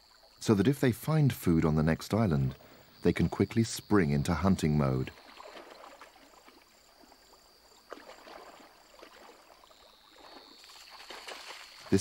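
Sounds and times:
water sloshing and splashing: 4.8 - 12.0.

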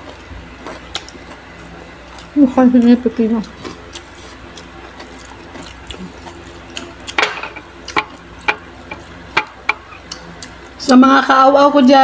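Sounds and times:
chewing crispy fried food: 0.0 - 10.9
dishes clicking: 6.8 - 10.3.

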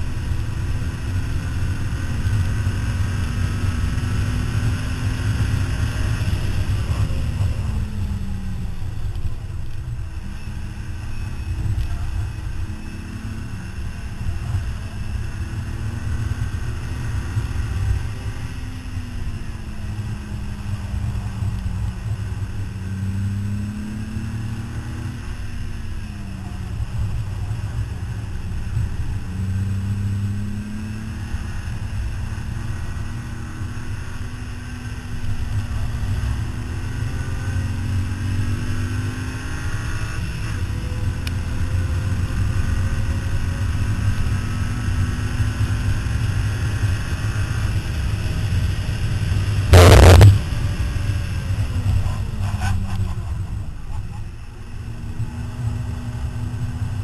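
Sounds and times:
car engine revving: 0.0 - 57.0
wind and road noise: 0.0 - 57.0
loud burst of noise: 49.7 - 50.5.

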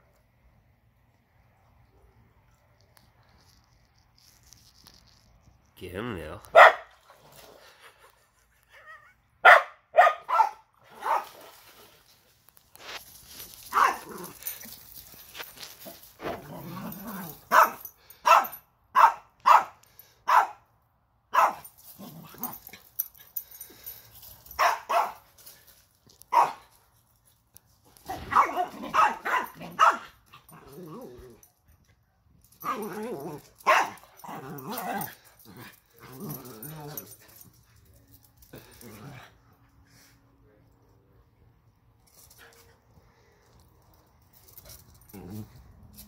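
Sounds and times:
dogs barking: 6.5 - 6.9, 9.4 - 11.3, 13.7 - 14.4, 17.5 - 20.6, 21.3 - 21.7, 24.6 - 25.2, 26.3 - 26.6, 28.1 - 30.2, 33.6 - 34.0.

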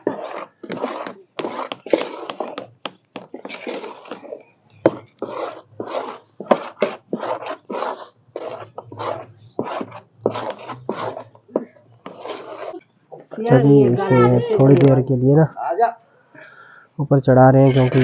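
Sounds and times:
people talking: 13.2 - 18.0.

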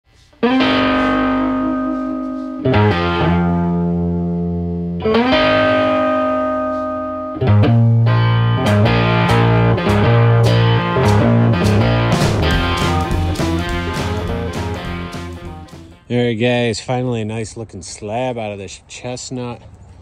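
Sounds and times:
ringing guitar chords: 0.4 - 16.1
drum hits: 8.7 - 16.0.

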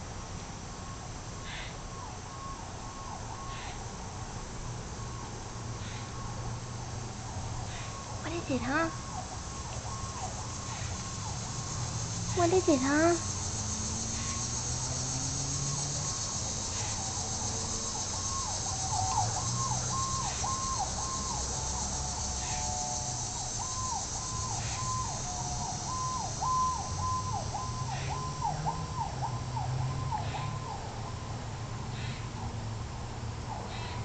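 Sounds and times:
steady high hiss: 0.0 - 34.0
siren yelping: 7.1 - 31.3.

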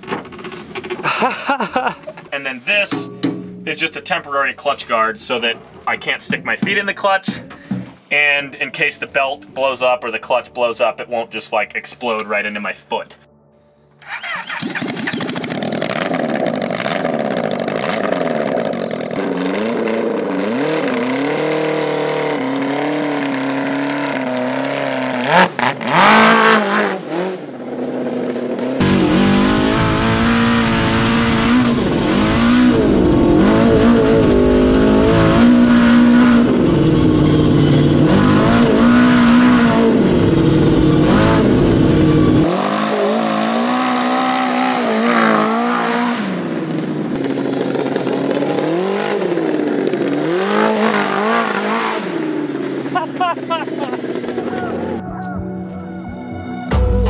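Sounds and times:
unmuffled car engine revving: 14.0 - 55.5.

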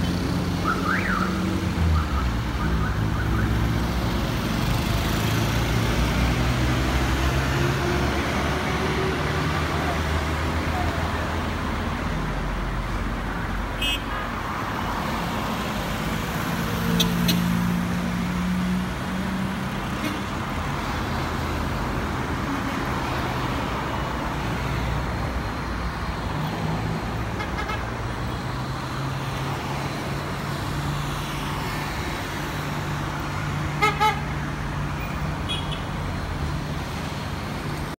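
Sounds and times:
street traffic noise: 0.0 - 38.0
car horns tooting: 13.8 - 14.2.

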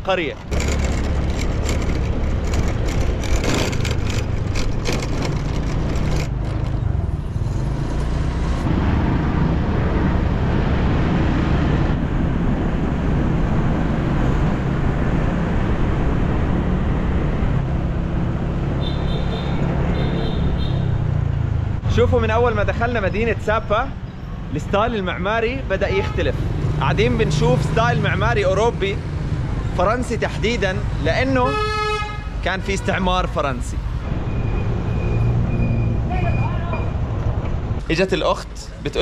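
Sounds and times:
motorbike engine running: 0.4 - 6.8.

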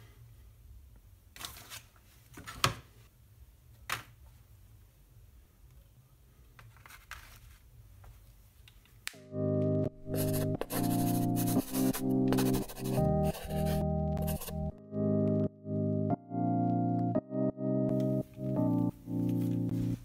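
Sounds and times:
music: 9.2 - 20.0.

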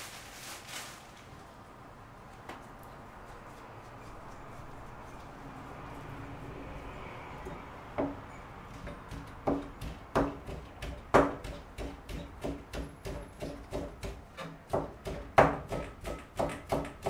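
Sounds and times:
knife chopping on plastic board: 9.1 - 17.0.

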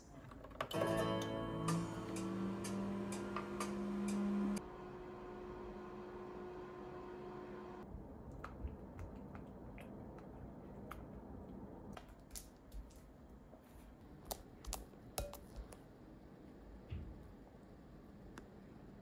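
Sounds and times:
spatula tapping glass bowl: 15.2 - 15.6.

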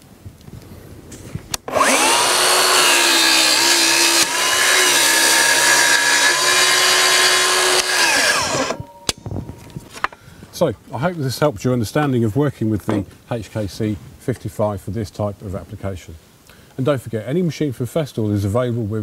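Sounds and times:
saw clicks: 1.5 - 9.3
circular saw cutting: 1.7 - 9.2.

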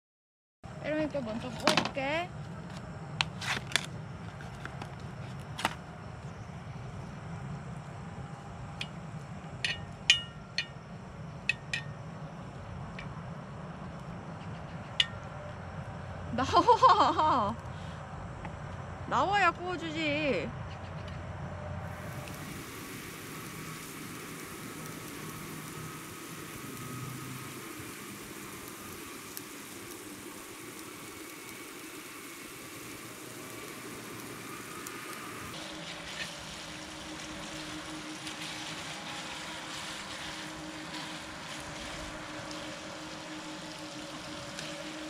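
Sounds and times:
meat sizzling on a griddle: 21.9 - 45.0.

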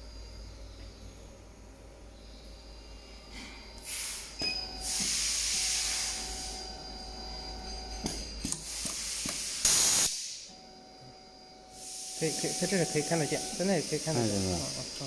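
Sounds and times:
compressed air hissing: 3.8 - 6.7, 8.4 - 10.5, 11.7 - 15.0.

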